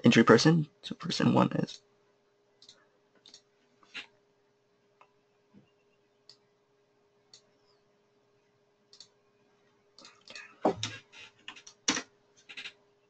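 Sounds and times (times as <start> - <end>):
computer mouse clicks: 2.6 - 4.0, 8.9 - 9.2.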